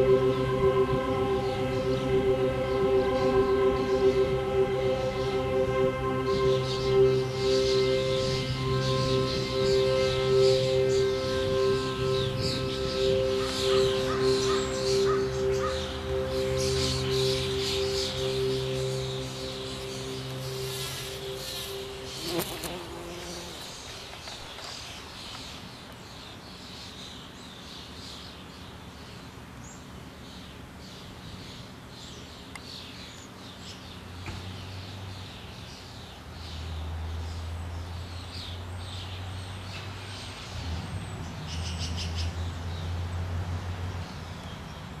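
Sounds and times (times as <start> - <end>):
chiming music notes: 0.0 - 23.4
small birds chirping: 6.2 - 43.1
bumblebee buzzing: 16.6 - 24.1.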